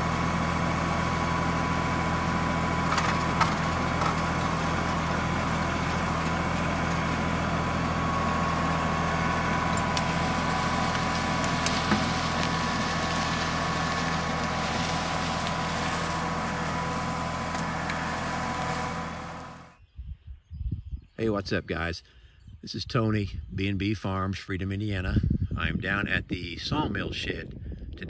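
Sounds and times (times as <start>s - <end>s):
diesel tractor engine running: 0.0s - 19.8s.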